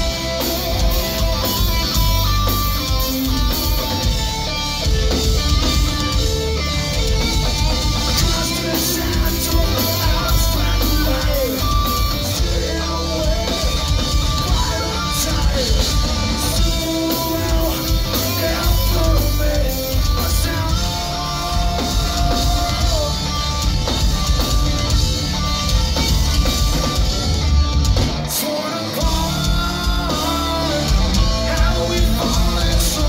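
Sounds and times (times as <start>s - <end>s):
distorted electric guitar: 0.0s - 33.0s
person singing: 8.1s - 23.4s, 28.3s - 33.0s.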